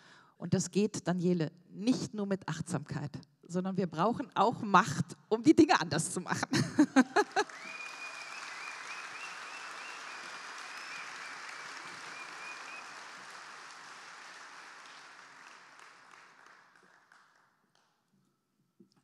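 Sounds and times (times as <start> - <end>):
audience applauding: 7.0 - 17.8.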